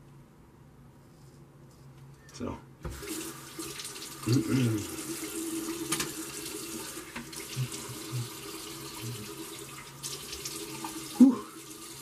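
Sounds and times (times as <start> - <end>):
water running into a sink: 2.9 - 12.0.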